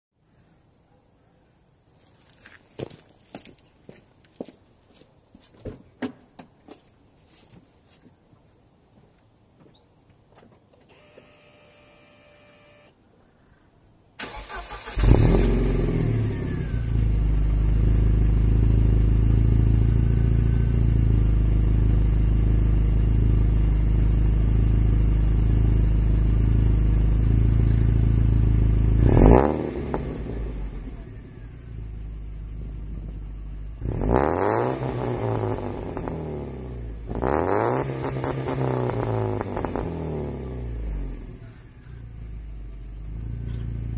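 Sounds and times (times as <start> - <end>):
car engine cranking: 14.2 - 15.9
car engine idling: 14.2 - 29.1, 30.0 - 34.1, 40.6 - 43.9.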